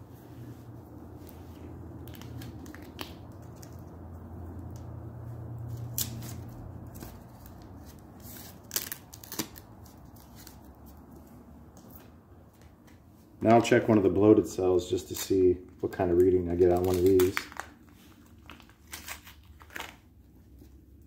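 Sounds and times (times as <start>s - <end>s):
low steady hum: 0.0s - 21.0s
masking tape peeling: 1.1s - 12.1s, 15.0s - 20.2s.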